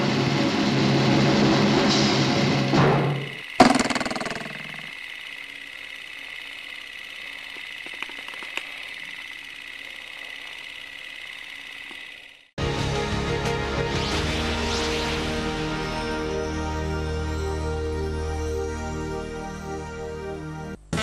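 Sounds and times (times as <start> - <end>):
mechanical whir with high tone: 0.2 - 12.6
faint ticks: 4.2 - 12.4.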